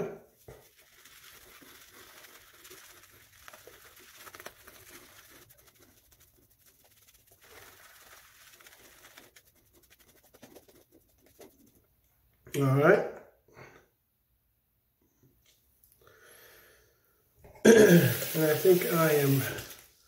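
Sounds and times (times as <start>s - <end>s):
shaving brush swishing: 0.4s - 11.8s, 18.1s - 20.0s.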